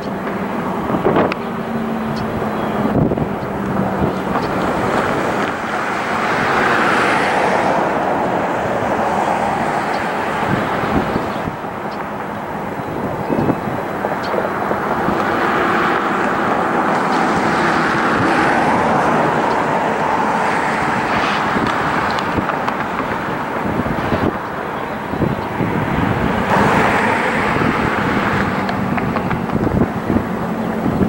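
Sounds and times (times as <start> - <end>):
diesel locomotive engine running: 0.0 - 31.0.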